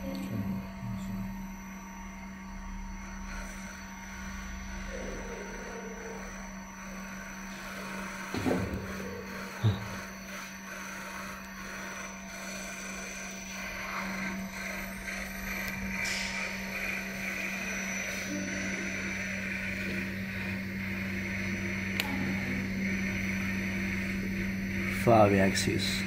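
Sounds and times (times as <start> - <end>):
machine electrical hum: 0.0 - 26.0
sharp click: 22.0 - 22.2.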